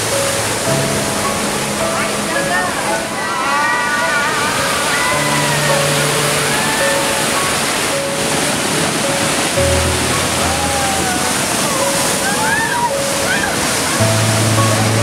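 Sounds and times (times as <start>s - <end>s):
background music with held notes: 0.0s - 15.0s
river rapids rushing: 0.0s - 15.0s.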